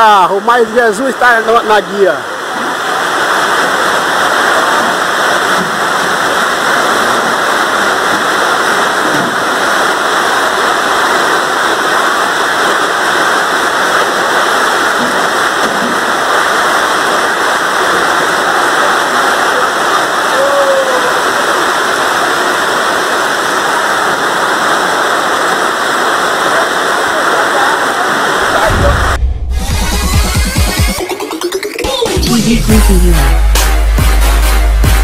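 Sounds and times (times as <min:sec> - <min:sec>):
heavy rain: 0:00.0 - 0:31.8
floodwater rushing: 0:00.0 - 0:31.9.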